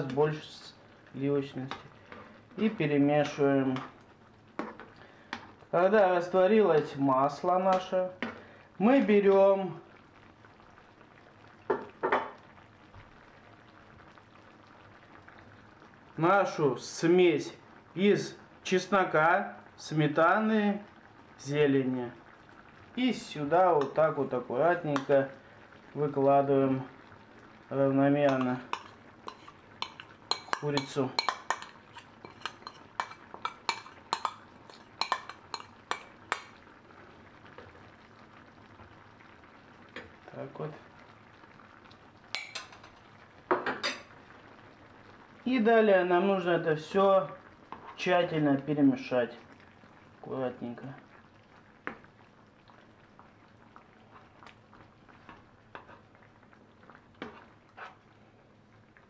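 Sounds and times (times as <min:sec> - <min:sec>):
sauce bubbling faintly: 0:00.0 - 0:59.0
spoon scraping frying pan: 0:01.6 - 0:05.6, 0:28.2 - 0:36.6, 0:42.3 - 0:43.0, 0:47.7 - 0:48.1, 0:53.9 - 0:56.2, 0:56.9 - 0:58.1.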